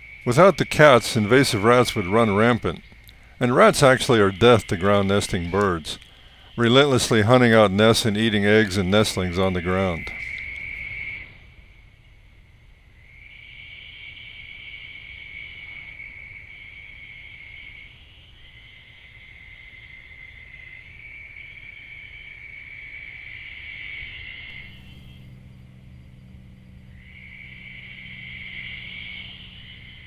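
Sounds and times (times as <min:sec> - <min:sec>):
low hum: 0:00.0 - 0:12.8, 0:24.5 - 0:30.0
night insects trilling: 0:00.0 - 0:30.0.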